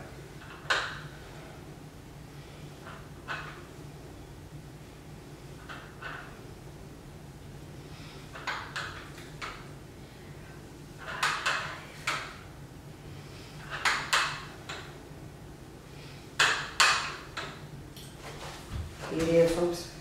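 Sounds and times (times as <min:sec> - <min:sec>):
dumbbells clinking and rattling: 0:00.1 - 0:01.4, 0:02.8 - 0:03.8, 0:05.6 - 0:06.5, 0:08.3 - 0:09.7, 0:10.9 - 0:12.5, 0:13.6 - 0:15.0, 0:16.4 - 0:18.5.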